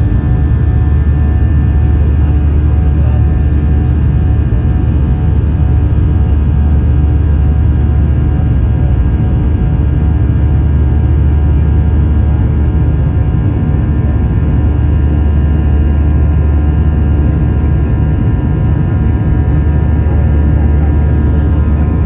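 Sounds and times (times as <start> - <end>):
airplane cabin engine drone: 0.0 - 22.0.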